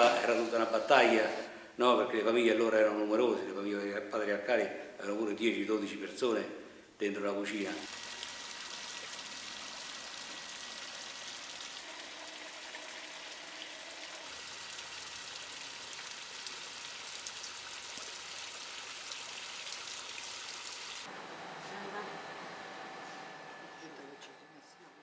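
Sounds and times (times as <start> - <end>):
stream water trickling: 7.9 - 21.1.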